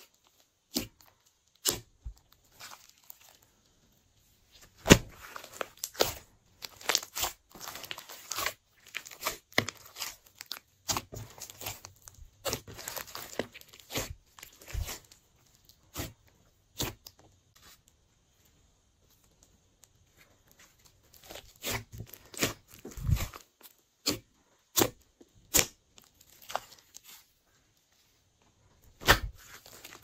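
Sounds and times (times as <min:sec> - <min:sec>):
slime crackling and popping: 0:04.8 - 0:17.2.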